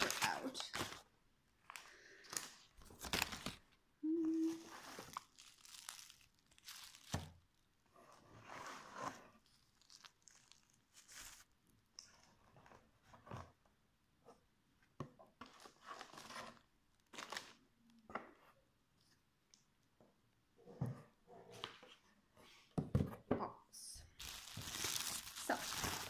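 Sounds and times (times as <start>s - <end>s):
bubble wrap and paper crinkling: 0.0s - 13.0s, 15.4s - 17.7s, 24.0s - 26.0s.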